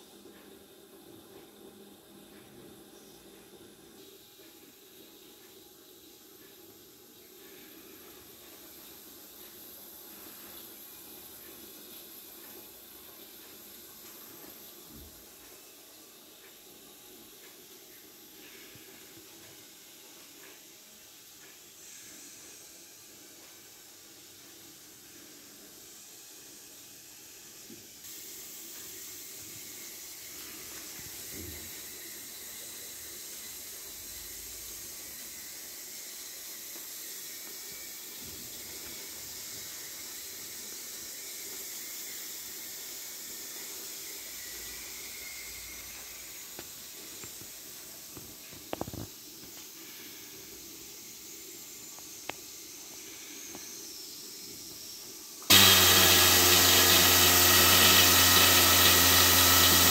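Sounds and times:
steam hissing: 4.0 - 59.9.

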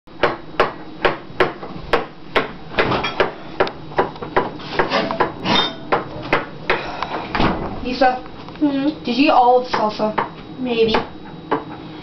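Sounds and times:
sharp knocks: 0.2 - 3.4.

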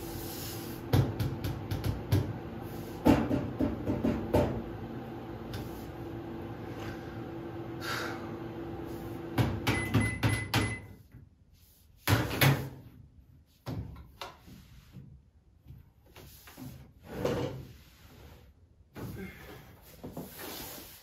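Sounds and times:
microwave oven humming: 0.0 - 11.0.

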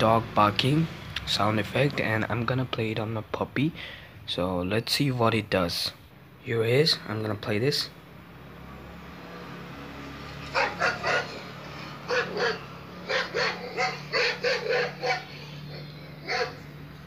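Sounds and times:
recorded dog barking through phone speaker: 10.5 - 16.7.

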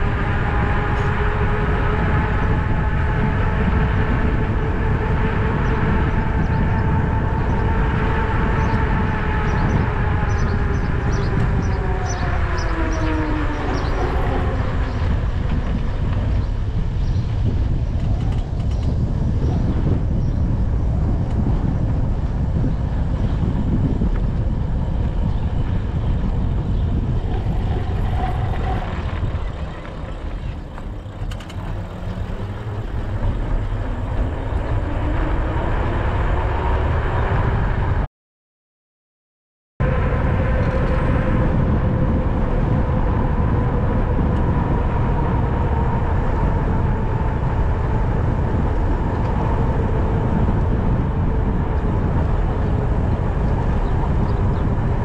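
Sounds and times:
tyre noise on asphalt: 0.0 - 36.9
wind on microphone: 0.0 - 38.1, 39.8 - 55.0.

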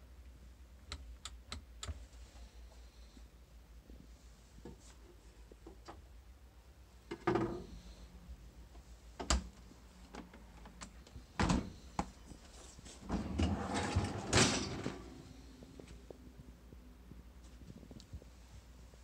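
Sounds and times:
drawer clunk: 13.0 - 15.2
freezer drawer sliding open: 13.0 - 15.2.

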